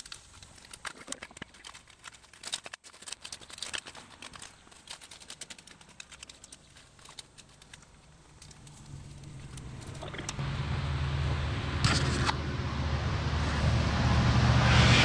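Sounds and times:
tines clicking on stones: 0.0 - 10.4
rake scraping through dirt: 11.8 - 12.4.

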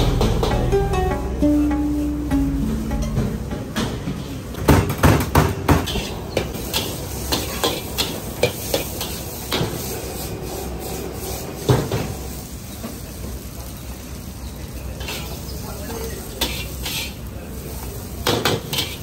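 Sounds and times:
metal spatula clanking on a wok: 5.7 - 9.2, 18.2 - 19.0.

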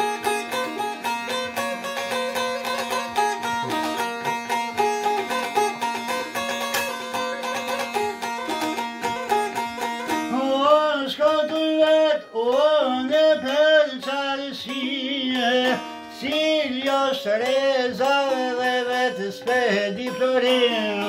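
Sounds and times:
plucked lute with drone: 0.0 - 21.0
man singing: 8.2 - 21.0.

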